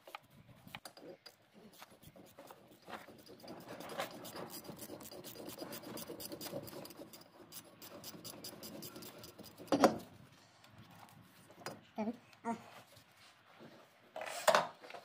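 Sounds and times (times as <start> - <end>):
wrench scraping metal: 2.9 - 10.1.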